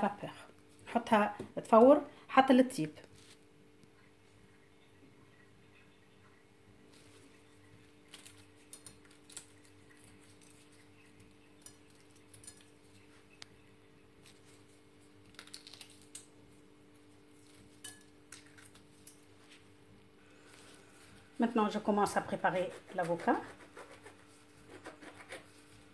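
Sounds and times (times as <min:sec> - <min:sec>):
eggshell crackling: 0:06.8 - 0:21.3.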